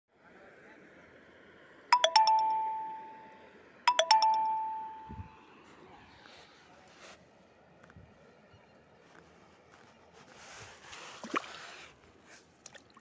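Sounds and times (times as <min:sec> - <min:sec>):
bell-like chime: 0:02.0 - 0:05.3.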